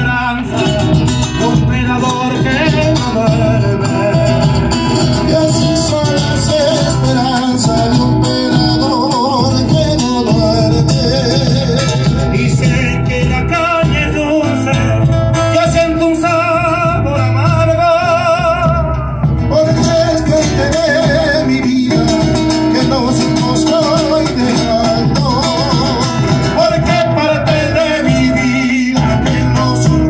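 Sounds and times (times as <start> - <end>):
bass drum beaten with stick: 0.0 - 30.0
men singing with vibrato: 0.0 - 30.0
strummed acoustic guitars: 0.0 - 30.0.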